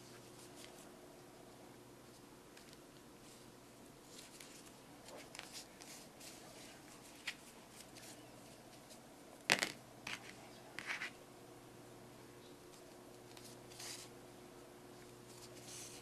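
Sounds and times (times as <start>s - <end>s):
faint yarn rustling: 2.0s - 9.1s.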